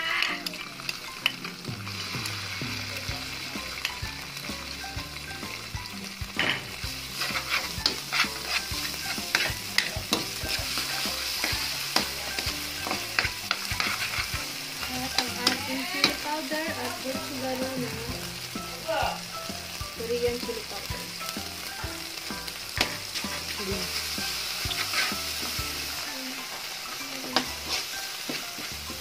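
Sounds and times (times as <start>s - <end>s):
onion sizzling in hot oil: 0.0s - 29.0s
metal spatula scraping pan: 6.4s - 17.1s, 22.8s - 25.9s, 27.3s - 27.9s.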